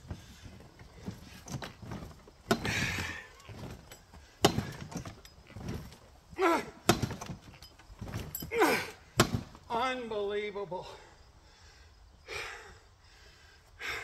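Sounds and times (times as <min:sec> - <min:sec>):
knocks and thuds: 0:00.0 - 0:06.1, 0:06.8 - 0:08.4, 0:09.2 - 0:09.6.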